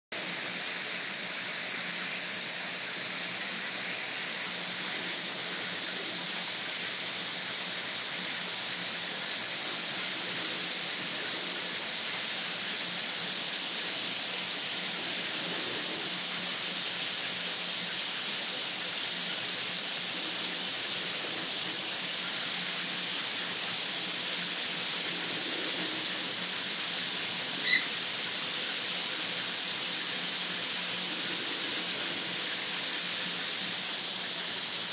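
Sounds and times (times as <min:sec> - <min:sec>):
shower spraying on tile: 0:00.2 - 0:34.9
short high chirp: 0:27.6 - 0:27.9.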